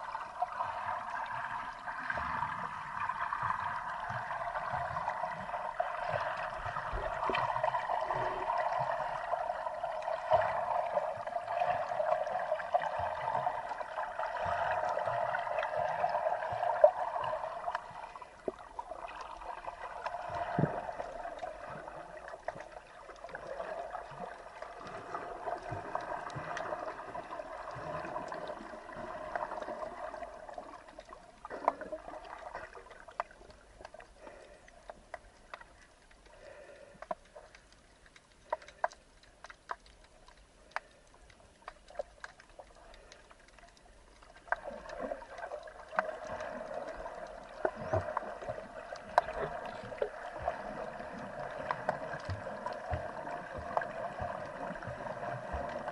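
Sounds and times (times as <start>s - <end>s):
muffled underwater gurgling: 0.0s - 32.9s, 44.4s - 55.9s.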